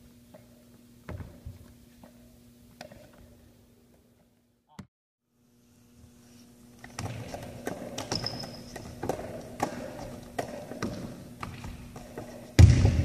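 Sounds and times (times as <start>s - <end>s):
basketball bouncing on hardwood: 1.0s - 1.6s, 7.0s - 13.0s.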